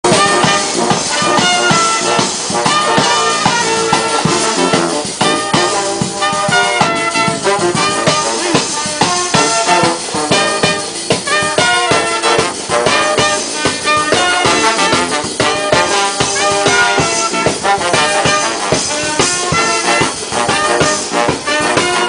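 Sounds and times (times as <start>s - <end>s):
drum kit and bass drum beat: 0.0s - 22.0s
trumpets and trombones: 0.0s - 22.0s.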